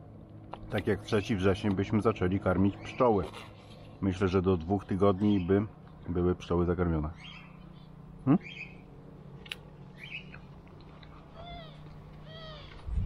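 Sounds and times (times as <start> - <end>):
cat meowing: 11.4 - 12.8.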